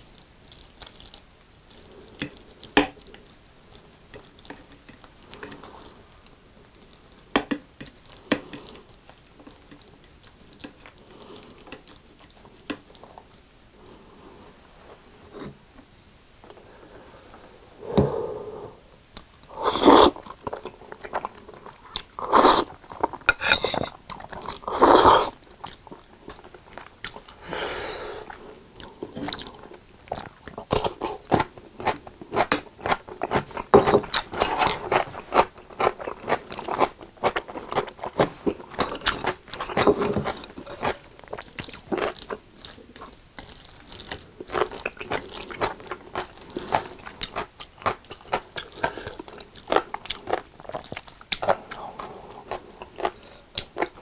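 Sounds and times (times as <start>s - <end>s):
wet chewing and lip smacking: 28.2s - 54.0s.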